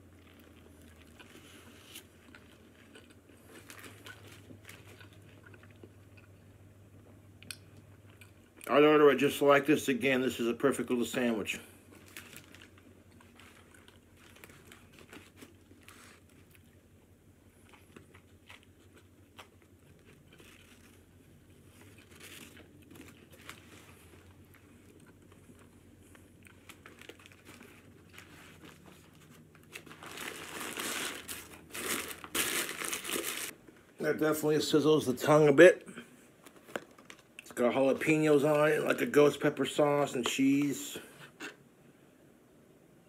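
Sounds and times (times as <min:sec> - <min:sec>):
person chewing: 0:00.0 - 0:08.7, 0:17.4 - 0:29.1
paper packaging crinkling: 0:00.1 - 0:05.8, 0:11.9 - 0:16.8, 0:17.7 - 0:33.6, 0:36.4 - 0:40.7.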